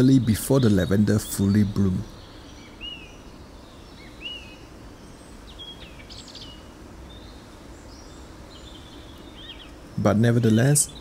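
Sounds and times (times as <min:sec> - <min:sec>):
songbirds chirping: 0:00.0 - 0:11.0.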